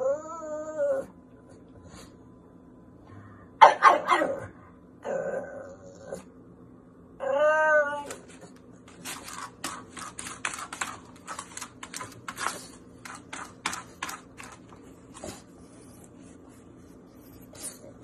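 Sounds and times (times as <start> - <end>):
dog whining: 0.0 - 1.2, 4.2 - 6.3, 7.2 - 8.5
dog scrabbling and scraping: 8.0 - 16.1.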